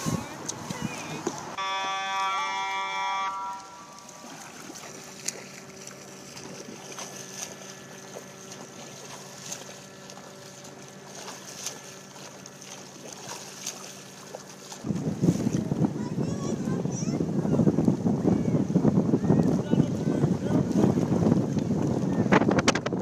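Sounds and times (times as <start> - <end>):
water splashes from swimming: 0.0 - 16.8
boat motor humming: 0.0 - 23.0
horn blast: 1.6 - 4.3.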